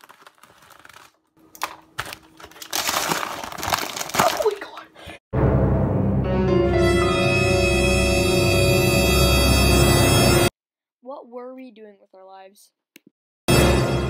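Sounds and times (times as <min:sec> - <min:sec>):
cookie bag crinkling: 0:00.0 - 0:05.0
eerie horror music: 0:05.4 - 0:10.5.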